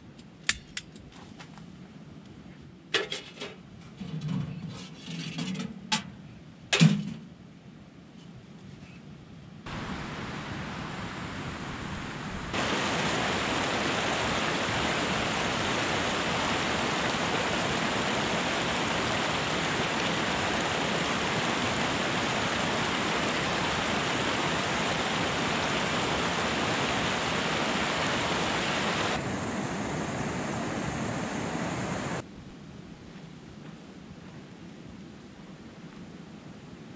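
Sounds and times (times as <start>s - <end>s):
stream rushing over rocks: 9.7s - 32.2s.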